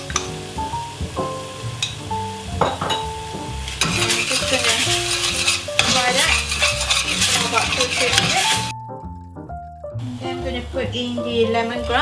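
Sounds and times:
background music: 0:00.0 - 0:12.0
curry paste sizzling in oil: 0:00.0 - 0:12.0
metal spatula stirring in pot: 0:03.7 - 0:08.7.

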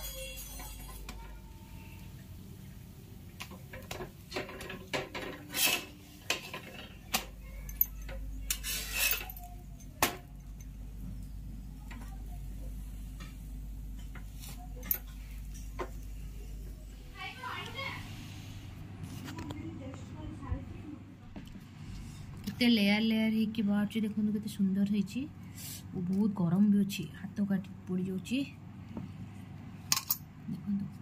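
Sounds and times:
metal spatula scraping a griddle: 0:05.1 - 0:06.9, 0:08.5 - 0:09.3.

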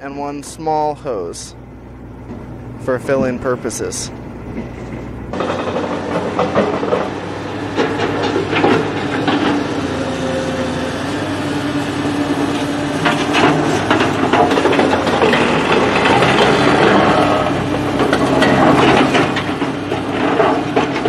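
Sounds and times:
engine-driven water pump running: 0:00.3 - 0:21.0
knocks and rattles: 0:04.5 - 0:09.8, 0:13.0 - 0:21.0.

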